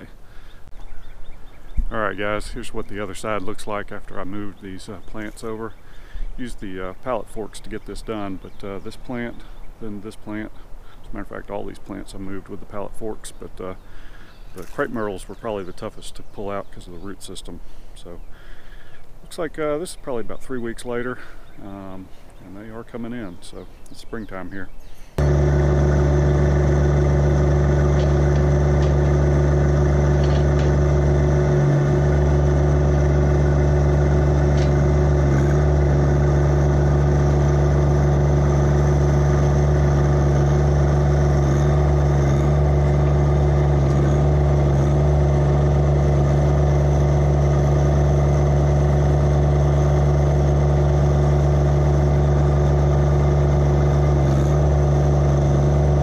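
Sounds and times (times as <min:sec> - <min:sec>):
diesel tractor engine running: 0:25.2 - 0:56.0.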